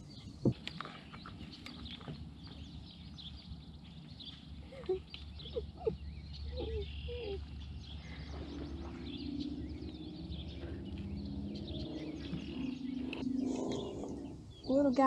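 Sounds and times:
low swooping bird calls: 0.0 - 15.0
small birds chirping and singing: 0.0 - 15.0
steady low hum: 0.0 - 15.0.

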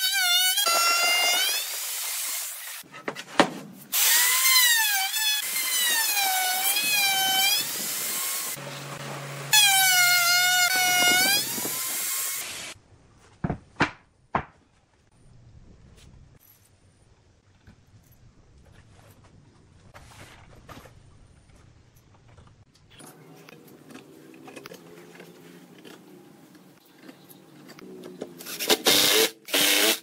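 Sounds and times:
router cutting wood: 3.9 - 12.8, 28.4 - 30.0.

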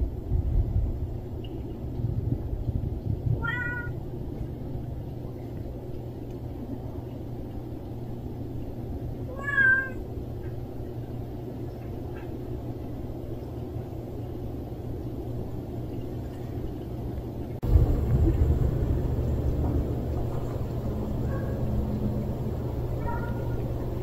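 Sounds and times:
low background rumble: 0.0 - 24.0
cat meowing: 3.4 - 4.0, 9.3 - 10.0, 23.0 - 23.7.

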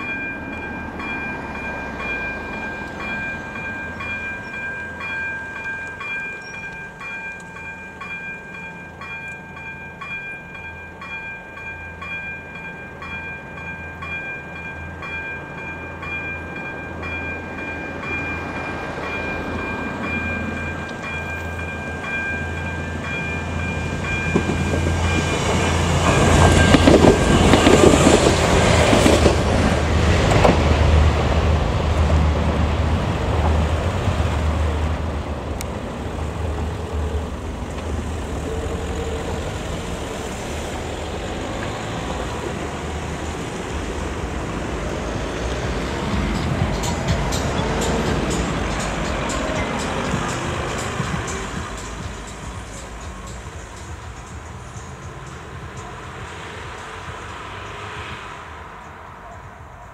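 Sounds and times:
level crossing bell ringing: 0.0 - 27.8
train rumble: 0.0 - 59.9.

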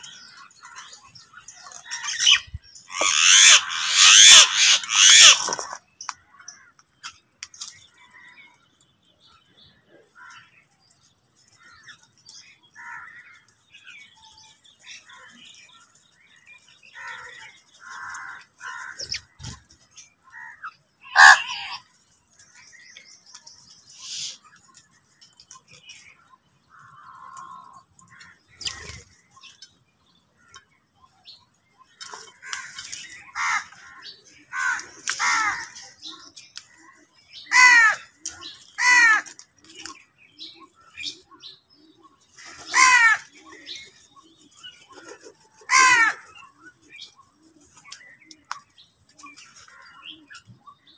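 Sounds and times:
crows cawing: 1.8 - 5.6, 12.8 - 13.4, 17.0 - 19.4, 20.3 - 21.8, 26.7 - 28.4, 32.4 - 35.9, 37.4 - 38.2, 38.8 - 39.4, 42.4 - 43.4, 45.7 - 46.4.

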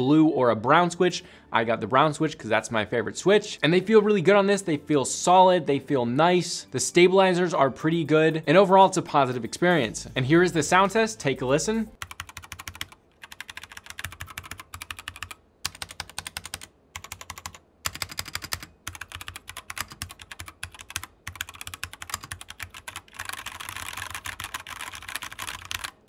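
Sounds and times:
mechanical keyboard typing: 12.0 - 26.0.

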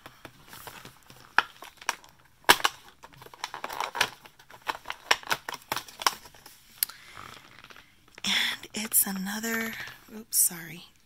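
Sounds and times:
cardboard tearing and snapping: 0.4 - 6.5.

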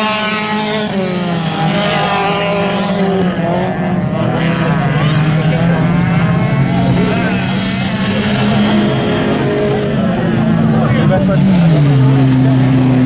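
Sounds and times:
race car engines revving: 0.0 - 13.0
voices: 3.0 - 13.0.

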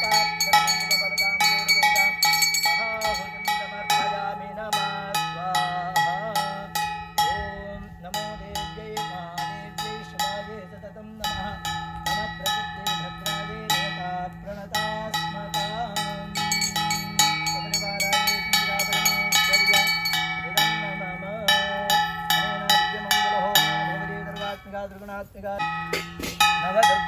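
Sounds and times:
brass hand bell ringing: 0.0 - 7.4, 11.2 - 27.0
wavering melodic line: 0.0 - 27.0.

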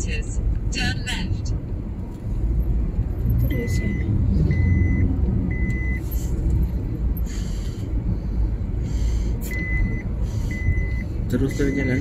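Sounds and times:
car engine and tyre rumble: 0.0 - 12.0.

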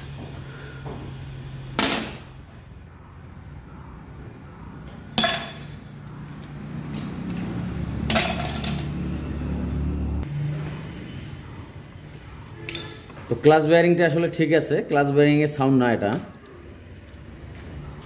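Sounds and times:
metal parts clinking: 8.1 - 9.0.

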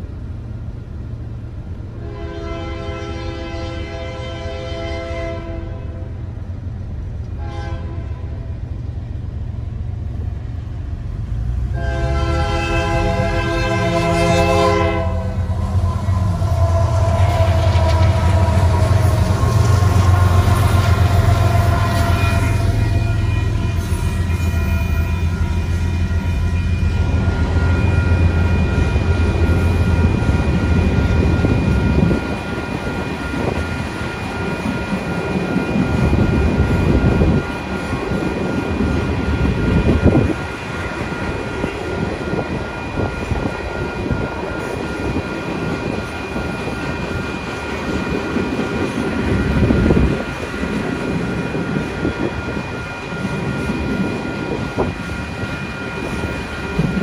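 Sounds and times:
train wheels rumbling on rails: 0.0 - 57.0
crossing warning bell ringing: 11.7 - 57.0.

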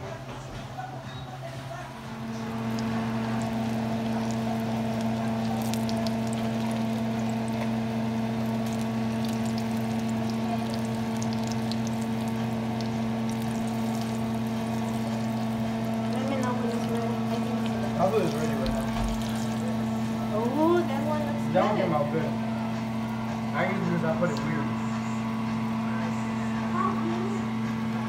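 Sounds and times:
steady low hum: 0.0 - 28.0
hot oil sizzling and crackling: 2.1 - 21.5.

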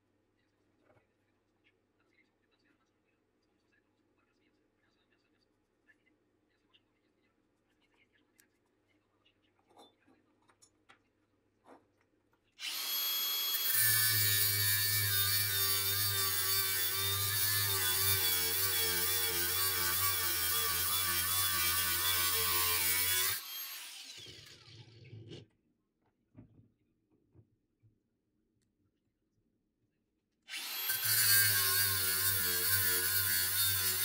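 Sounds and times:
angle grinder cutting metal: 12.6 - 25.0, 30.5 - 34.0.

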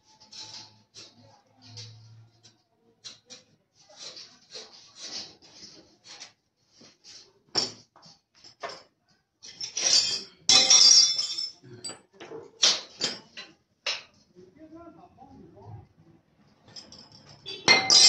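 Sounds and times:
metal clatter: 16.6 - 18.0.

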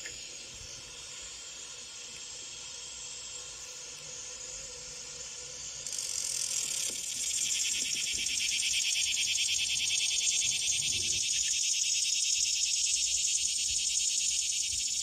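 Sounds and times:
cicada buzzing: 0.0 - 15.0.

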